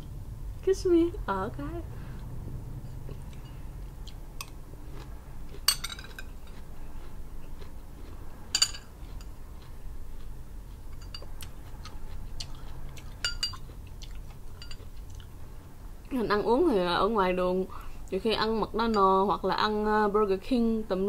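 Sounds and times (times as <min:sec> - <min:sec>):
spoon clinking against glass bowl: 0:05.7 - 0:06.3, 0:08.5 - 0:09.3, 0:11.0 - 0:11.3, 0:13.2 - 0:13.6, 0:14.6 - 0:14.8.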